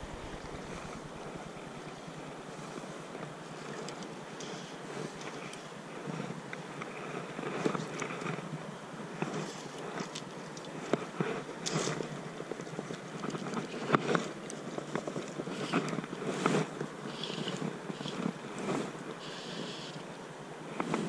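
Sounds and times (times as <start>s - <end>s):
wind buffeting microphone: 0.0s - 2.6s
creek water running: 0.0s - 20.7s.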